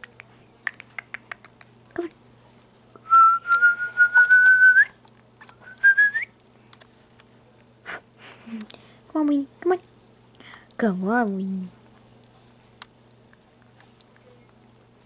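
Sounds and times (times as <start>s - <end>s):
person whistling for a dog: 3.0s - 5.0s, 5.6s - 6.3s.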